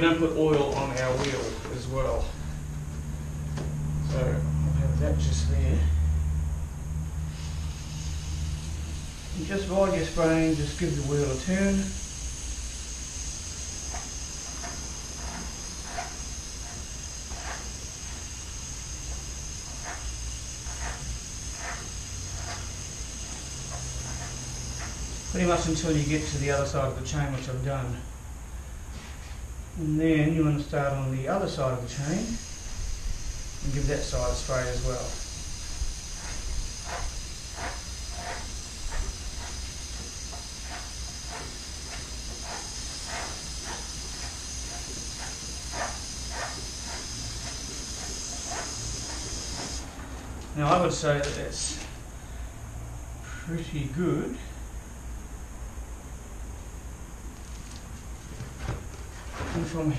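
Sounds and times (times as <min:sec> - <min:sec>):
aerosol spray hissing: 0:07.3 - 0:26.4, 0:32.1 - 0:49.8.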